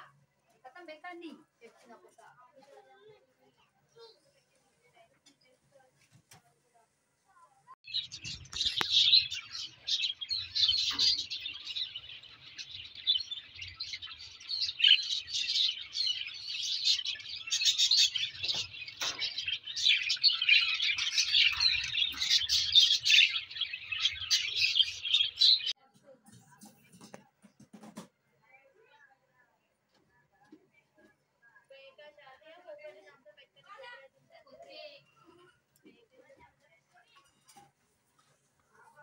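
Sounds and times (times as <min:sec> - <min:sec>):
birds chattering high chirps: 0:07.8 - 0:25.8.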